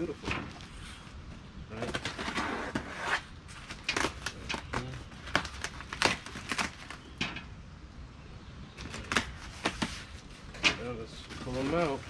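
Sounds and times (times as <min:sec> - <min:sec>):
packing material rustling in box: 0:01.7 - 0:07.2, 0:08.8 - 0:12.0.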